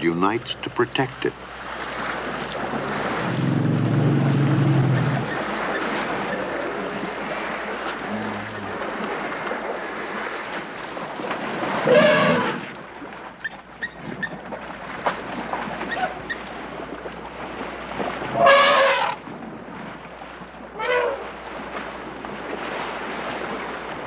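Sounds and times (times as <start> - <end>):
elephant trumpeting: 11.8 - 12.6, 18.4 - 19.2.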